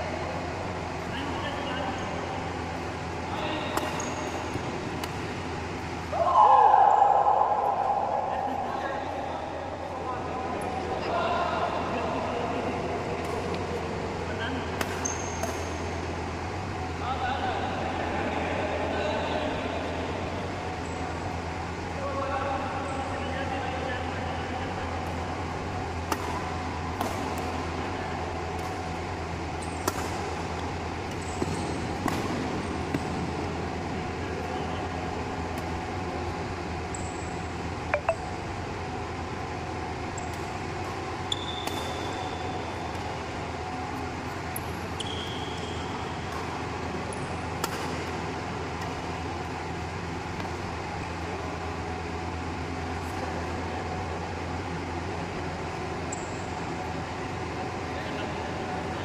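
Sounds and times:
steady low hum: 0.0 - 59.0
racket hitting shuttlecock: 3.7 - 5.4, 14.7 - 15.8, 26.0 - 27.7, 28.5 - 29.0, 29.8 - 33.2, 40.2 - 42.2, 47.5 - 49.0
shoe squeaks on court floor: 3.8 - 4.6, 14.9 - 15.8, 41.3 - 42.6, 44.9 - 46.3.

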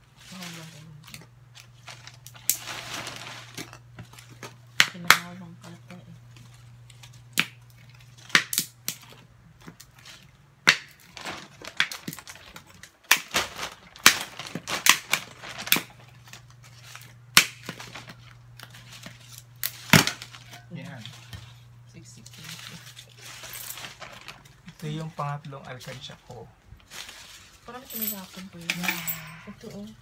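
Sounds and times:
low steady hum: 0.0 - 30.0.

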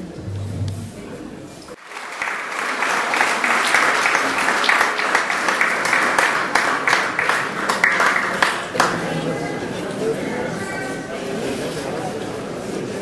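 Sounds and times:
crowd applauding: 1.8 - 9.5.

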